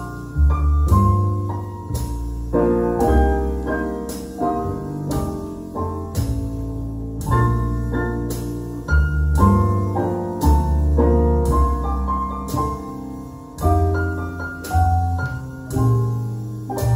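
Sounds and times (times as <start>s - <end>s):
piano music with deep bass: 0.0s - 16.9s.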